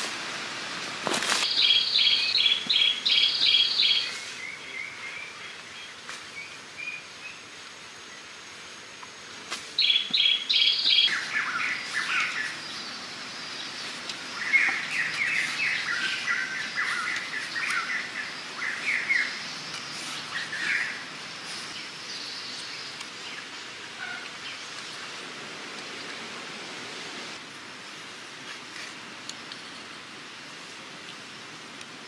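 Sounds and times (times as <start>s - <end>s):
birds chirping: 1.4s - 8.4s, 9.8s - 26.9s.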